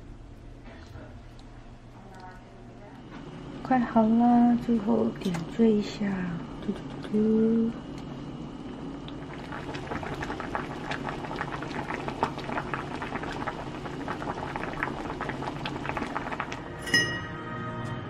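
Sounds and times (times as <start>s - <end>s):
stew boiling in a pot: 3.3s - 17.2s.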